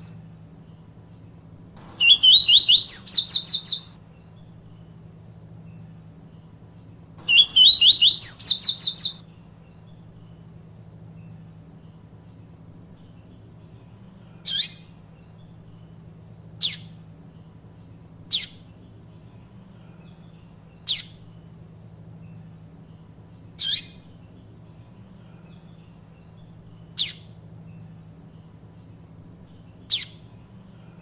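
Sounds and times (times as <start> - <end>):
bird giving sharp downslurred notes: 1.8 - 3.9, 7.2 - 9.2.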